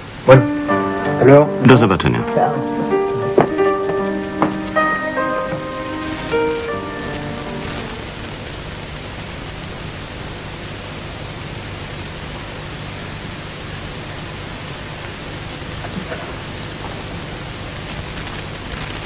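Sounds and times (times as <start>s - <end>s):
piano notes: 0.0s - 9.0s
steady hiss: 0.0s - 19.0s.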